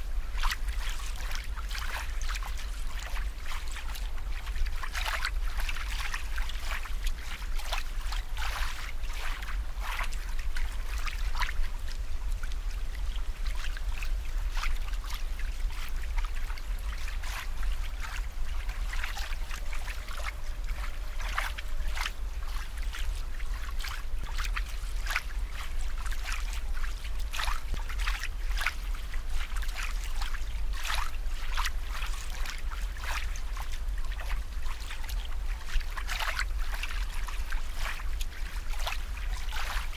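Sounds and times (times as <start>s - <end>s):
small splashes and pops: 0.0s - 39.9s
steady low hum: 0.0s - 39.9s
water bubbling and trickling: 0.0s - 39.9s.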